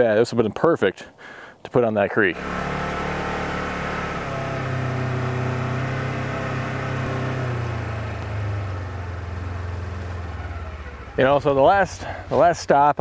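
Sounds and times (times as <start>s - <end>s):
utility vehicle engine running: 2.3s - 12.6s.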